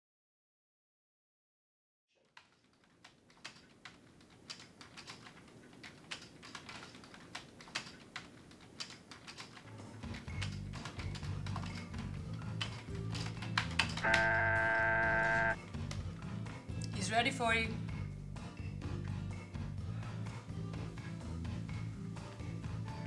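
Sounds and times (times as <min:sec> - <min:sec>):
computer keyboard typing: 0:02.4 - 0:15.6
low music: 0:09.8 - 0:23.0.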